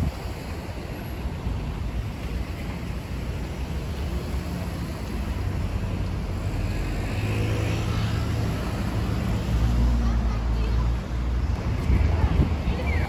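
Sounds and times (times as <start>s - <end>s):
wind rumble on microphone: 0.0s - 6.5s, 11.2s - 13.0s
road traffic: 0.0s - 13.0s.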